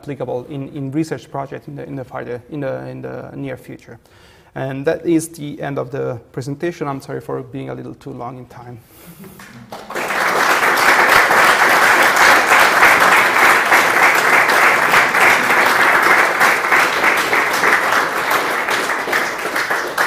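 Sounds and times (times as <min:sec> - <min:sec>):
applause from small crowd: 0:09.4 - 0:20.0.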